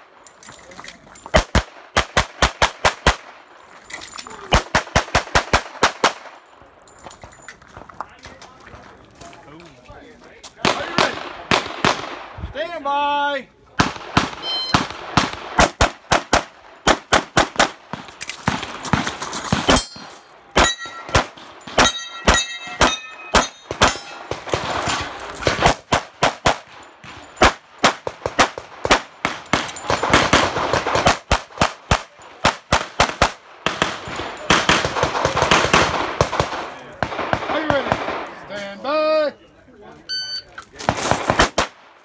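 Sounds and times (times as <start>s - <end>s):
rapid pistol fire: 13.8s - 19.7s, 27.4s - 38.3s, 40.9s - 41.8s
bullets ringing steel targets: 14.3s - 15.0s, 17.9s - 30.5s.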